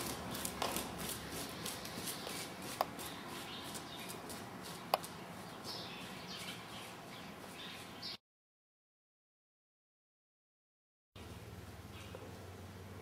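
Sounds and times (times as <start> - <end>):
hoofbeats on soft ground: 0.0 - 8.2.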